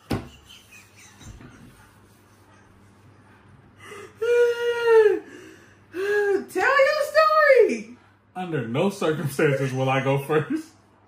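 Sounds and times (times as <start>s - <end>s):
woman whining groan: 3.9s - 6.5s.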